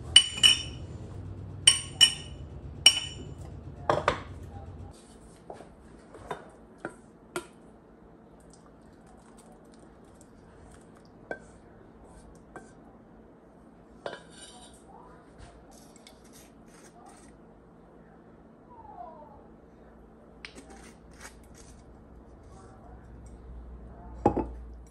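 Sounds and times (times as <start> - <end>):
spoon knocking on saucepan: 0.1 - 0.8, 1.7 - 3.3.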